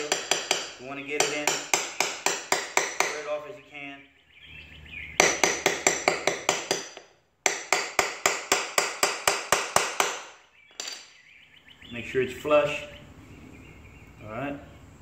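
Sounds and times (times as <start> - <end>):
hammer tapping metal tool: 0.0 - 3.2, 5.2 - 11.0.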